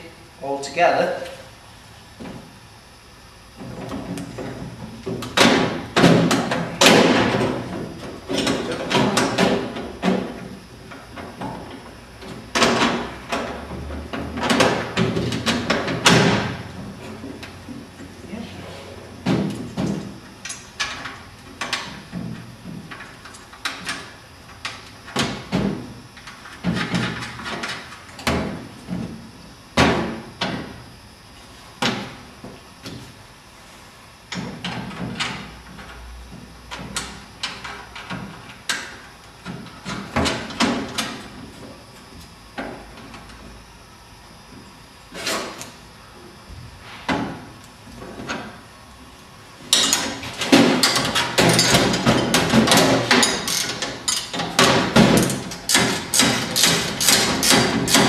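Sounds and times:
metal brackets clanking on panels: 0:49.7 - 0:58.0.

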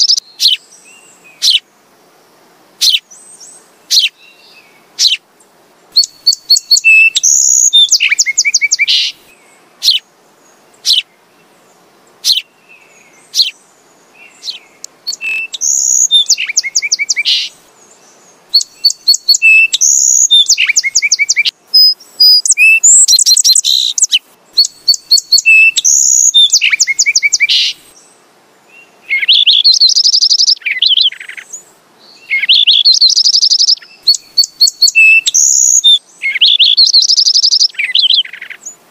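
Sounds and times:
sparrows chirping: 0:00.0 - 0:01.7, 0:02.8 - 0:05.2, 0:06.0 - 0:28.2, 0:28.8 - 0:38.8.

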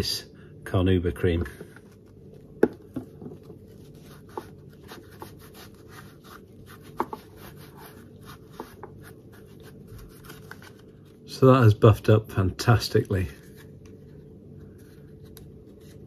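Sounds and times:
cloth rubbing leather: 0:03.4 - 0:10.8.

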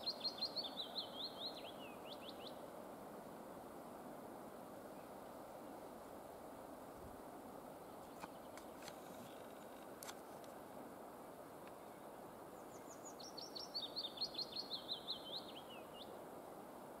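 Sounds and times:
small bird singing: 0:00.0 - 0:02.6, 0:11.8 - 0:16.2
outdoor background hiss: 0:00.0 - 0:17.0.

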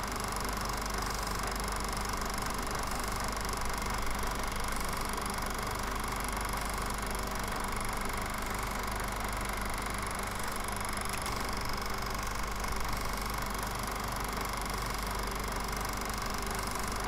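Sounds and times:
film projector whirring: 0:00.0 - 0:17.0.

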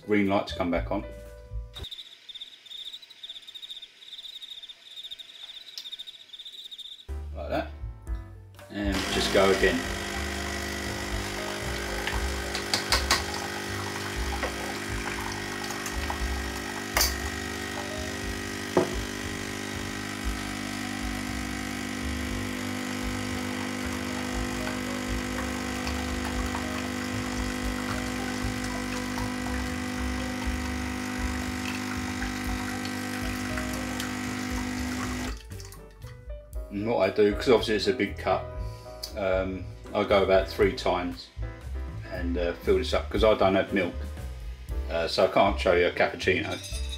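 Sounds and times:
espresso machine pump running: 0:08.9 - 0:35.4.

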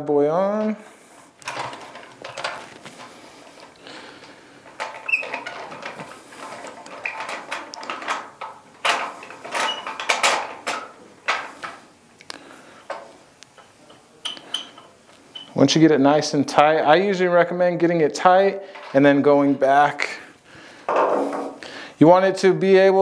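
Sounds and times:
metal parts clicking and scraping: 0:01.4 - 0:11.9, 0:12.8 - 0:15.7, 0:18.6 - 0:19.9.

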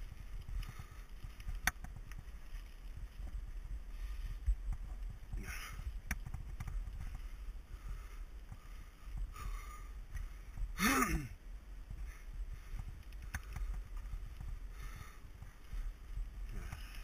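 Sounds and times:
wind on microphone: 0:00.0 - 0:10.8
bike tyre rumble on gravel: 0:00.0 - 0:17.0.

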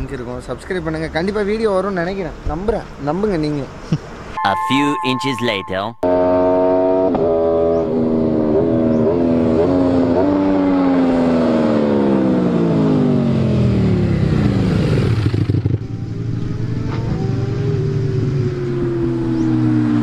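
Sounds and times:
motorcycle passing by: 0:06.3 - 0:20.0.

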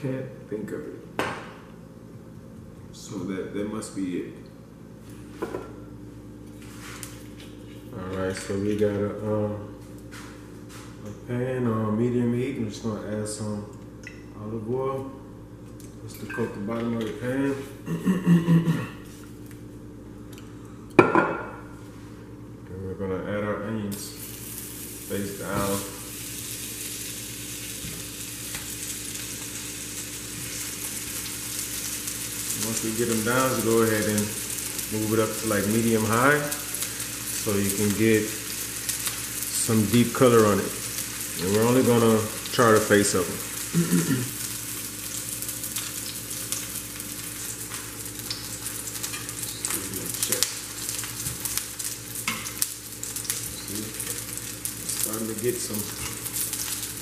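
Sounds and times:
onions sizzling in oil: 0:24.1 - 0:57.0.

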